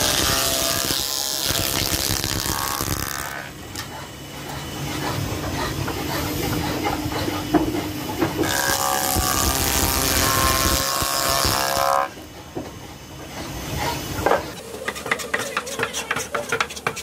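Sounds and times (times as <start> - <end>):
power planer shaving wood: 0.0 - 3.6, 4.9 - 12.2.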